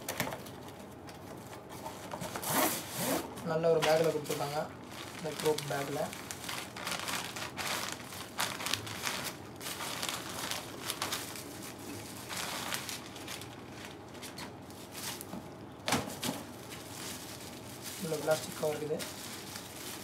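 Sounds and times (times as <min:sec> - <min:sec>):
plastic wrapper crinkling: 0:03.5 - 0:15.4, 0:16.4 - 0:20.0.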